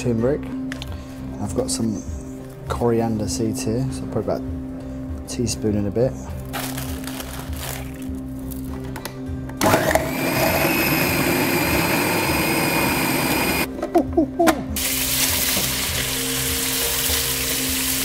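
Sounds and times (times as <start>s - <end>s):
food processor motor whirring: 9.6s - 13.7s
meat sizzling in a wok: 14.8s - 18.0s.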